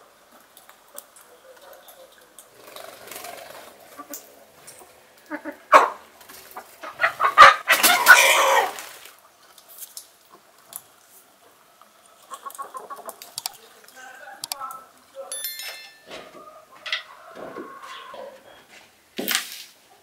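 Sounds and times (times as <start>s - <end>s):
chickens clucking: 0.2s - 9.6s, 10.2s - 15.1s, 15.8s - 18.9s
chicken squawk: 5.2s - 9.1s, 12.2s - 13.2s, 16.3s - 18.6s
rooster crowing: 7.2s - 8.8s, 16.2s - 18.6s.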